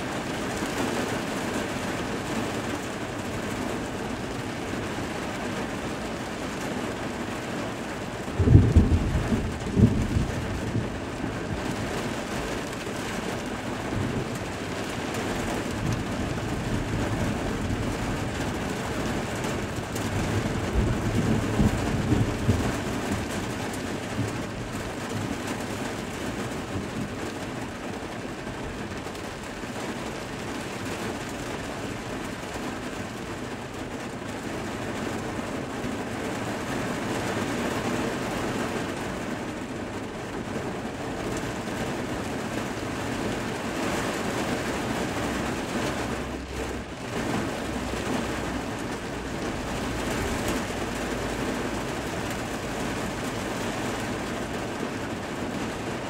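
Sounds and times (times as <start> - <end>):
steady rain: 0.0 - 56.0
thunder crack and rumble: 8.2 - 25.4.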